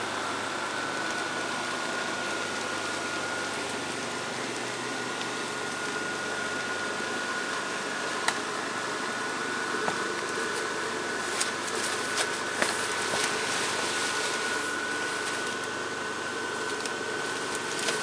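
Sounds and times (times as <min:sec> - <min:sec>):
electric blower fan humming: 0:00.0 - 0:18.0.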